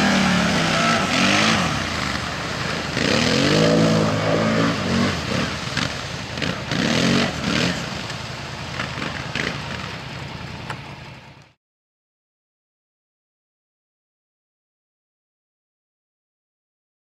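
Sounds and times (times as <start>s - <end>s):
quad bike engines revving: 0.0s - 11.5s.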